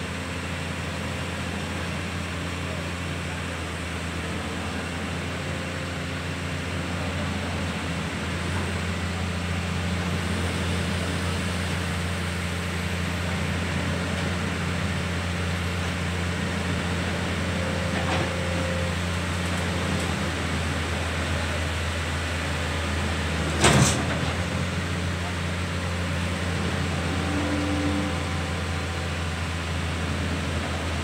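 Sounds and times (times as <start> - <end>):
excavator diesel engine under load: 0.0 - 31.0.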